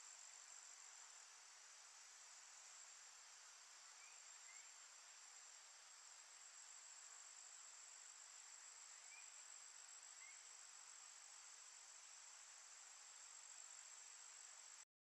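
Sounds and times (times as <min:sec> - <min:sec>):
soft hiss: 0:00.0 - 0:14.8
faint chirps: 0:03.8 - 0:05.0, 0:08.7 - 0:10.8.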